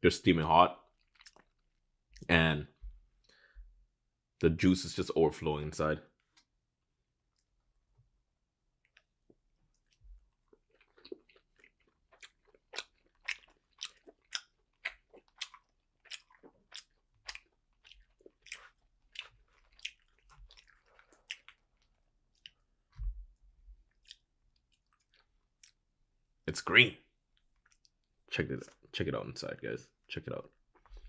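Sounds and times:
person chewing: 0.9 - 2.3, 8.8 - 23.1, 23.8 - 25.8, 27.4 - 28.1.

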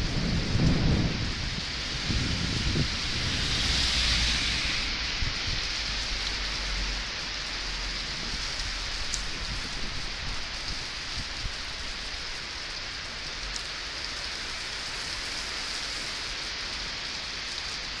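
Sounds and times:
heavy rain on pavement: 0.0 - 18.0.

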